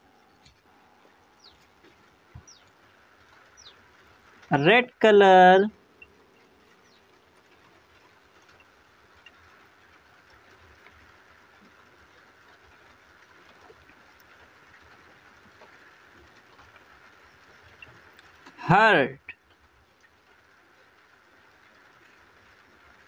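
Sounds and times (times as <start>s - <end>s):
small ticks: 5.9s - 18.6s.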